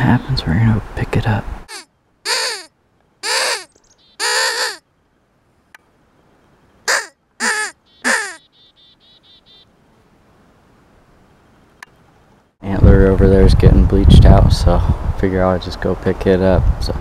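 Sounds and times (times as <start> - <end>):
harsh hand-blown game call: 1.7 - 4.8, 6.9 - 8.4.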